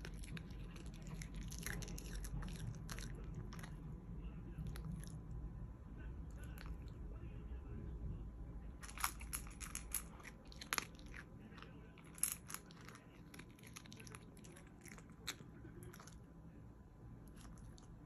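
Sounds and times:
dog crunching dry kibble: 0:00.0 - 0:04.0, 0:04.6 - 0:05.2, 0:08.8 - 0:16.2.

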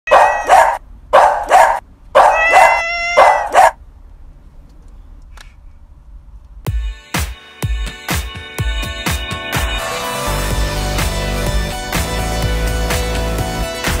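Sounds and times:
dog barking: 0:00.1 - 0:03.8
music with heavy beat: 0:06.7 - 0:14.0.

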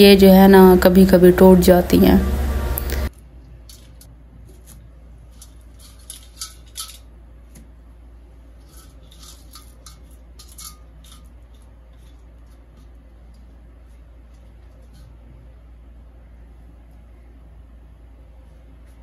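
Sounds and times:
steady low hum: 0:00.0 - 0:19.0
metal colander and pan clinking: 0:05.4 - 0:07.0, 0:08.6 - 0:11.6.

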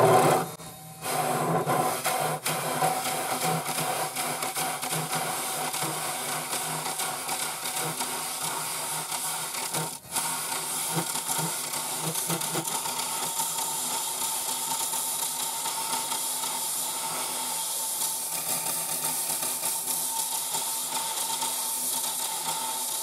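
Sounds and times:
gouge shaving wood on a lathe: 0:00.0 - 0:00.5
lathe motor hum: 0:00.0 - 0:12.7.

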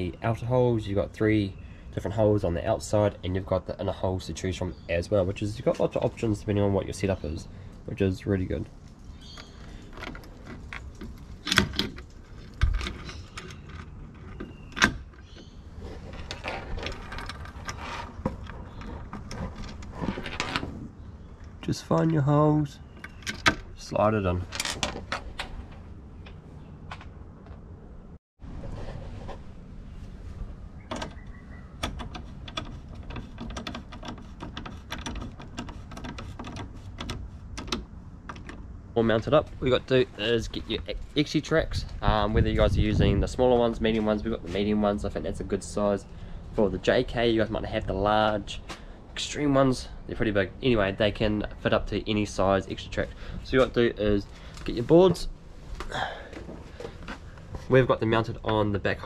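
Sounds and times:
parts scraping and rattling: 0:08.5 - 0:27.8, 0:28.5 - 0:42.1.

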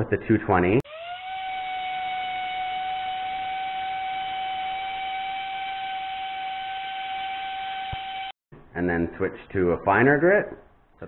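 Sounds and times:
orbital sander whining: 0:00.9 - 0:08.4.

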